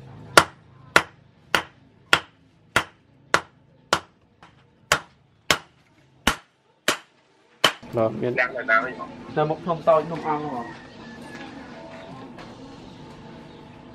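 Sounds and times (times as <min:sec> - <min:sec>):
hammer striking metal on anvil: 0:00.4 - 0:05.7, 0:06.3 - 0:07.9.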